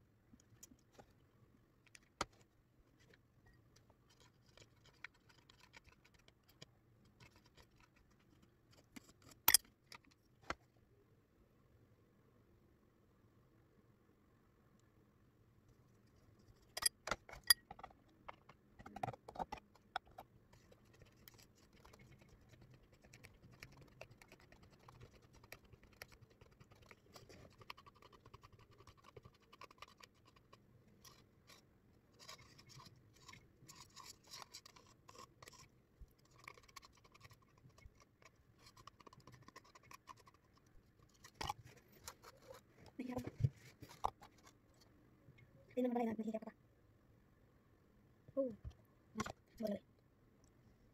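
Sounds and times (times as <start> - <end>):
metal spoon scraping plastic cup: 32.2 - 40.4.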